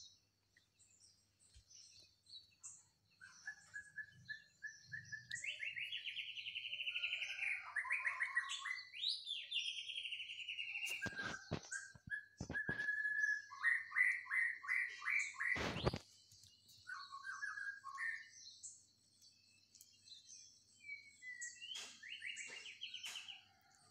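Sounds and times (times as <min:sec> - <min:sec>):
faint high twittering: 0:00.0 - 0:23.8
birds chirping: 0:00.0 - 0:23.9
brief noisy rustle: 0:10.8 - 0:13.0, 0:15.4 - 0:16.0.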